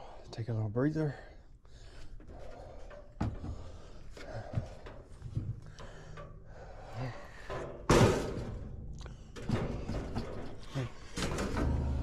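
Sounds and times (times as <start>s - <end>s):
man breathing hard: 0.0s - 0.3s, 1.0s - 7.9s.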